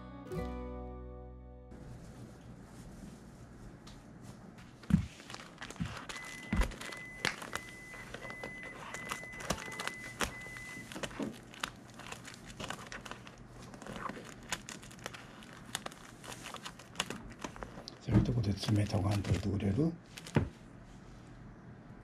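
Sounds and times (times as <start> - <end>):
acoustic guitar chord: 0.0 - 1.8
cat claws scratching binders: 5.4 - 17.9.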